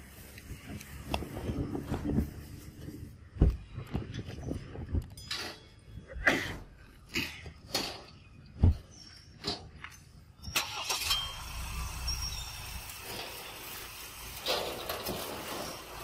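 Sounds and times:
vehicle engine rumble with hiss: 11.3 - 16.0.

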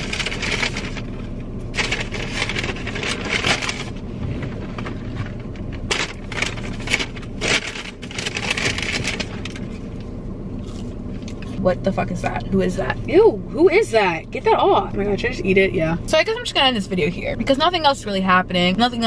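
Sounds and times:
paper bag crinkling: 0.0 - 10.0.

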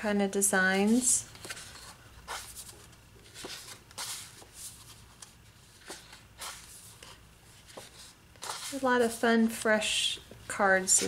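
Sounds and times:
paper sliding against paper: 0.9 - 9.2.

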